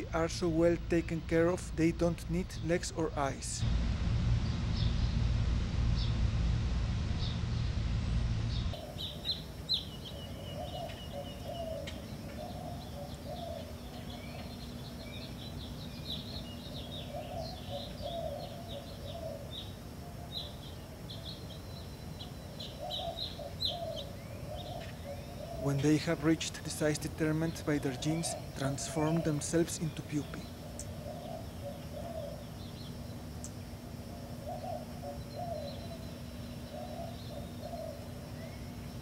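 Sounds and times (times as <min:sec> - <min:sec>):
low wavering sound: 0:00.0 - 0:08.8
low hum: 0:00.0 - 0:20.2
birds chirping: 0:00.0 - 0:39.0.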